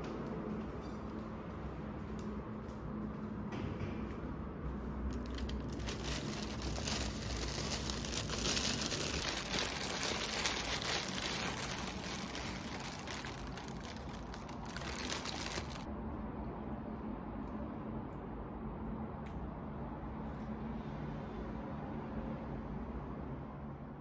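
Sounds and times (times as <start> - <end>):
plastic wrapper crinkling: 5.1 - 15.9.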